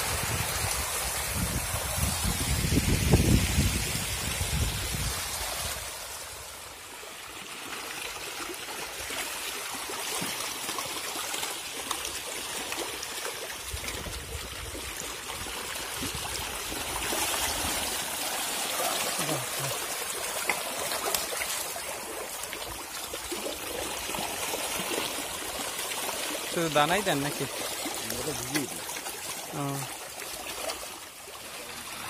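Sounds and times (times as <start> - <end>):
water pouring from a hose: 0.0 - 6.6, 7.4 - 32.0
fish thrashing and splashing: 7.9 - 32.0.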